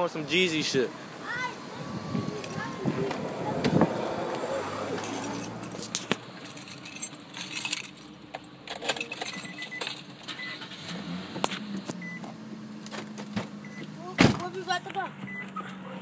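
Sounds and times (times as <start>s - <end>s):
objects jangling and rattling: 2.3s - 2.7s, 5.0s - 10.4s.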